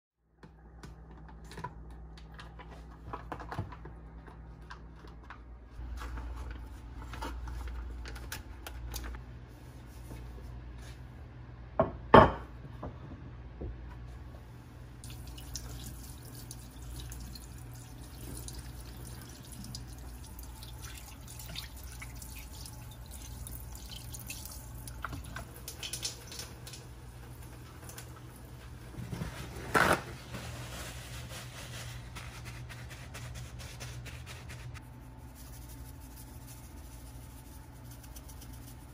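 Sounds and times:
kitchen tap running: 0:15.0 - 0:28.8.

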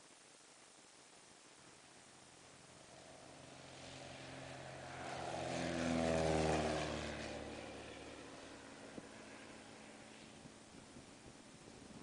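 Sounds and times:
light aircraft flying past: 0:02.5 - 0:12.0.

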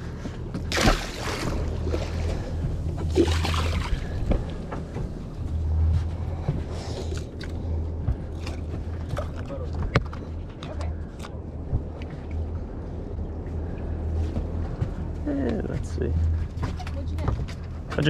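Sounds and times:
low rumble: 0:00.0 - 0:18.0
fish splashing into water: 0:00.6 - 0:02.5, 0:03.1 - 0:04.2.

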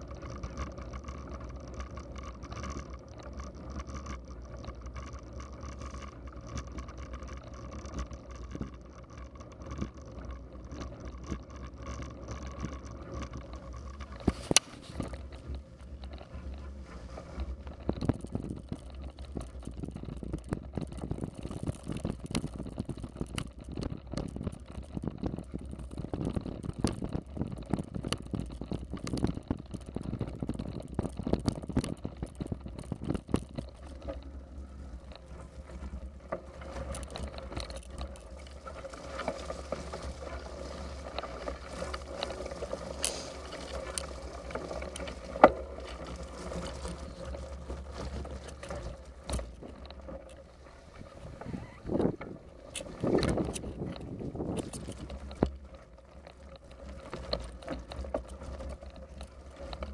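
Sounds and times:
bicycle knocks and rattles: 0:00.0 - 0:59.9
wind: 0:00.0 - 0:59.9
tyre rumble: 0:12.7 - 0:59.9.

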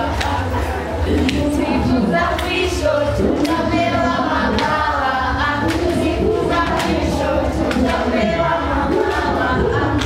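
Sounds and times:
hand claps: 0:00.0 - 0:00.5, 0:01.1 - 0:01.5, 0:02.3 - 0:02.6, 0:03.3 - 0:03.7, 0:04.5 - 0:04.8, 0:05.6 - 0:10.0
children singing: 0:00.0 - 0:10.0.

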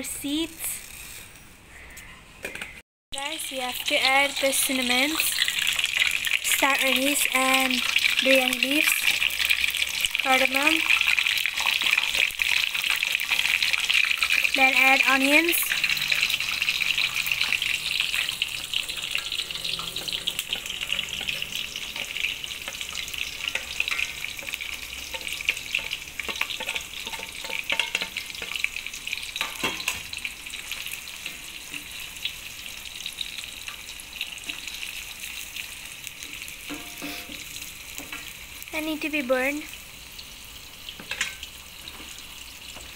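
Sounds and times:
onions sizzling in hot oil: 0:00.0 - 0:01.8, 0:03.2 - 0:42.9
oil crackles and clicks: 0:05.2 - 0:36.7.

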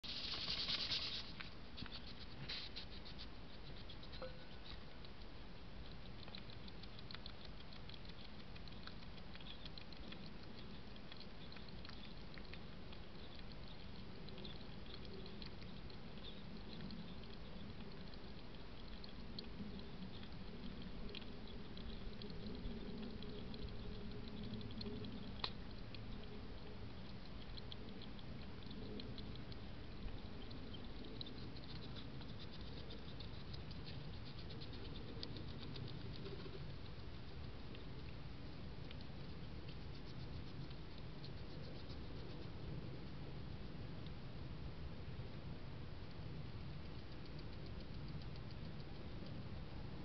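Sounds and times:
rustle against microphone: 0:00.0 - 0:04.9
hedgehog feeding clicks and crunches: 0:00.0 - 0:50.0.

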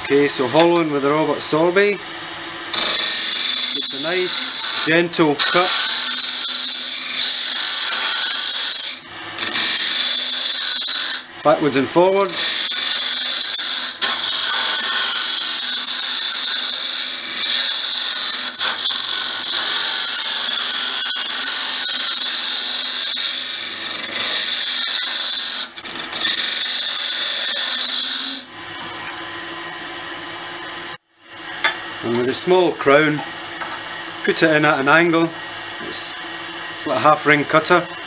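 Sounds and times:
lathe humming: 0:00.0 - 0:30.8
tool scraping wood on lathe: 0:02.7 - 0:11.3, 0:12.0 - 0:29.1.

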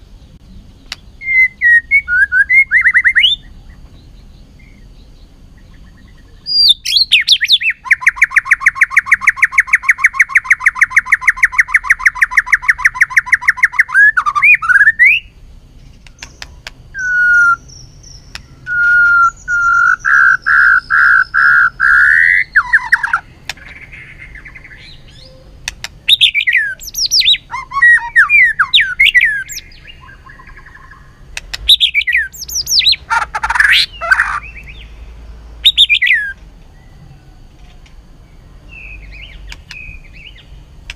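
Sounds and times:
bird singing: 0:00.0 - 0:40.9.

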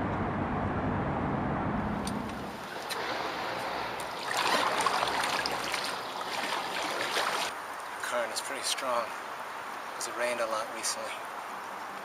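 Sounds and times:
low rumble: 0:00.0 - 0:04.0
water trickling and lapping: 0:02.3 - 0:08.2
paddle splashing water: 0:02.4 - 0:08.0.

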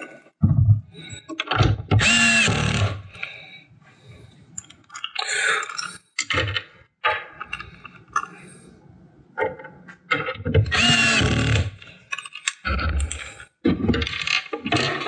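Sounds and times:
cordless drill whining: 0:02.0 - 0:03.0, 0:10.7 - 0:11.8
screws rattling and clicking: 0:10.2 - 0:13.4.

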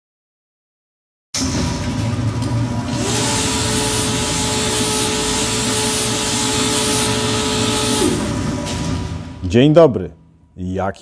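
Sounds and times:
dense steady workshop noise: 0:01.4 - 0:11.0
power tool whining: 0:02.9 - 0:09.2.

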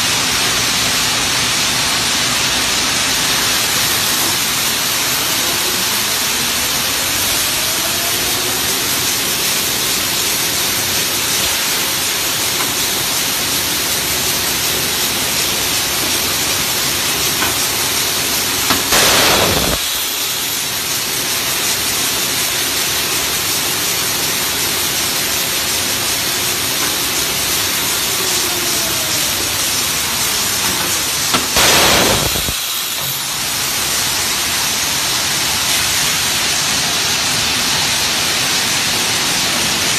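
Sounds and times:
tape slitting machine hissing: 0:00.7 - 0:36.2.

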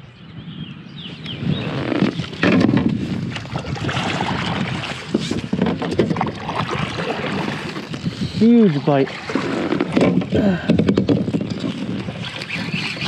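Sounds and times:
paddle splashing in water: 0:01.9 - 0:13.0.

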